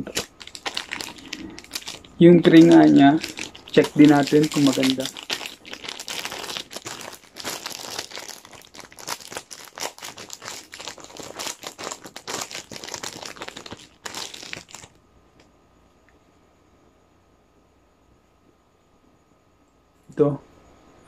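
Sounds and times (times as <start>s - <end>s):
plastic bag crinkling: 0.0s - 15.0s.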